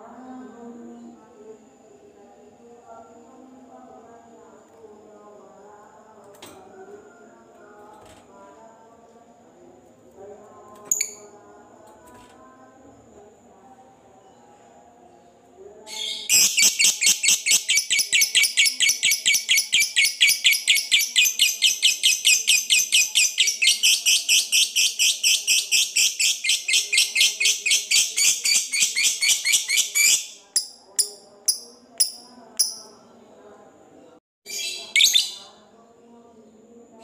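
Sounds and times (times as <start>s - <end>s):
lovebird shrill chatter: 16.0s - 30.3s.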